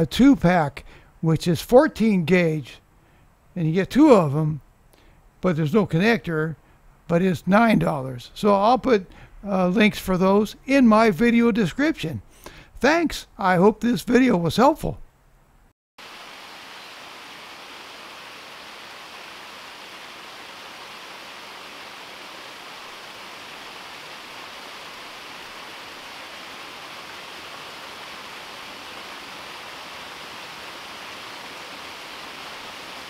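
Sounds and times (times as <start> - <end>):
small waterfall splashing over rocks: 16.0 - 33.0.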